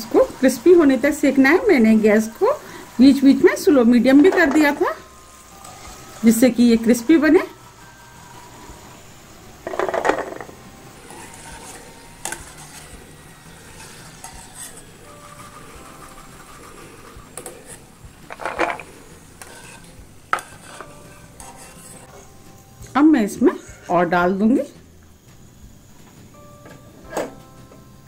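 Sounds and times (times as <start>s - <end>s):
oil sizzling: 0.0s - 28.0s
wire strainer scraping metal pan: 9.7s - 22.3s.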